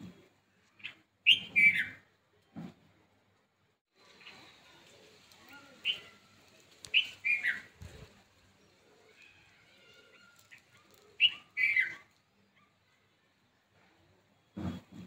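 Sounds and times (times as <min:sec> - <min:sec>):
bird chirping: 0:00.8 - 0:02.1, 0:06.8 - 0:08.0, 0:10.2 - 0:12.2.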